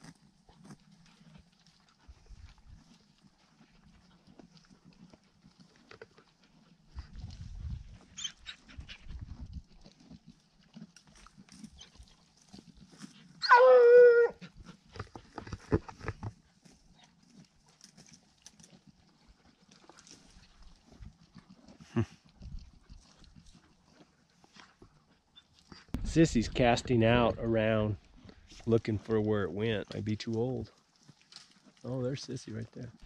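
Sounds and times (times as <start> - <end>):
hooves knocking on rocky ground: 6.9 - 33.0
hound howling: 13.4 - 14.4.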